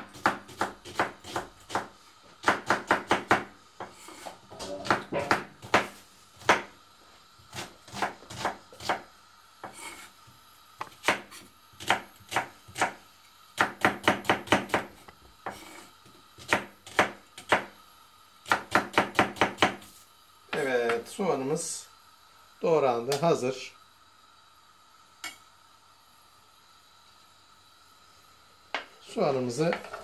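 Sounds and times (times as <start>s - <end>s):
knife chopping on wooden board: 0.0s - 6.7s, 7.5s - 9.0s, 10.8s - 13.0s, 13.6s - 15.6s, 16.4s - 17.7s, 18.5s - 19.9s.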